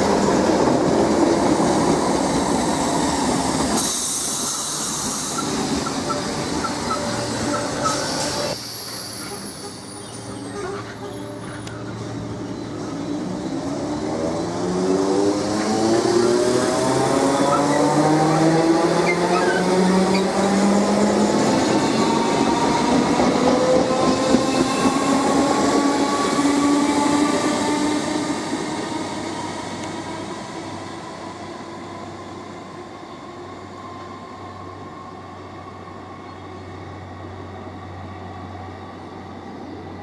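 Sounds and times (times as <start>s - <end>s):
wheel and rail noise: 0.0s - 31.4s.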